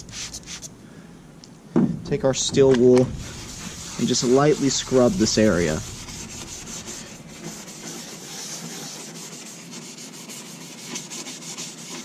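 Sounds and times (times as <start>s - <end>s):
steel wool scrubbing metal: 2.6s - 12.0s.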